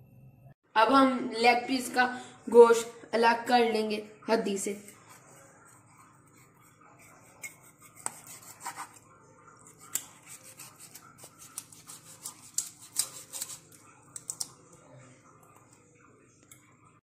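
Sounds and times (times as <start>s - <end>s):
knife scraping meat off bones: 4.8s - 14.5s.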